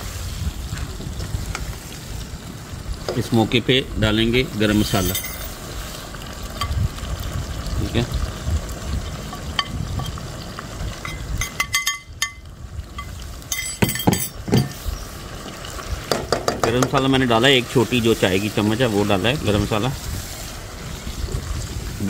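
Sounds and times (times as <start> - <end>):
clinks against cooking pot: 11.0 - 12.4, 13.0 - 14.8.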